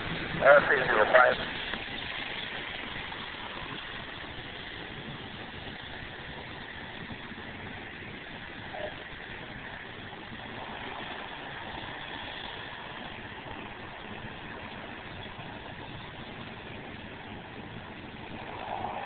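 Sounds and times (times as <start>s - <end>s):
distant airplane engines droning: 0.0s - 19.0s.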